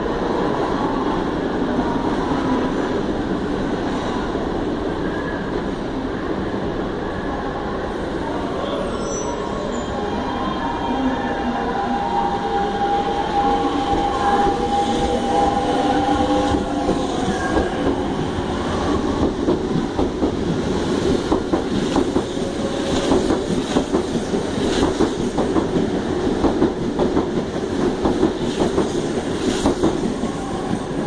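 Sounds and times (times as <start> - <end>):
train whine: 0.0 - 31.0
train wheel clicks and clacks: 19.2 - 30.9.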